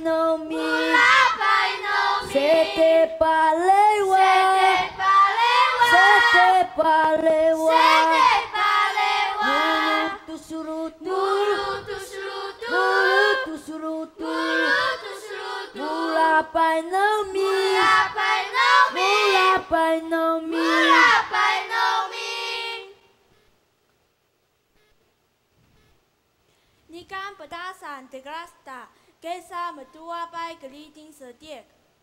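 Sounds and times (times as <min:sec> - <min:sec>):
children singing: 0:00.0 - 0:03.2, 0:04.0 - 0:19.8, 0:20.5 - 0:23.0.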